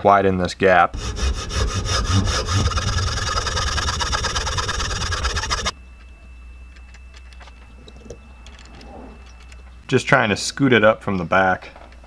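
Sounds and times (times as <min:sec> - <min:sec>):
hand saw cutting: 0:01.0 - 0:05.7
faint steady high tone: 0:04.4 - 0:12.0.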